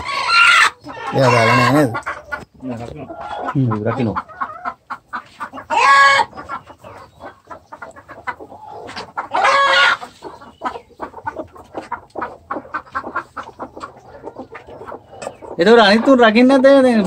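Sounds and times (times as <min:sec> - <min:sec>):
loud ringing chicken calls: 0:00.0 - 0:02.4, 0:04.2 - 0:16.6
chickens clucking: 0:00.0 - 0:17.0.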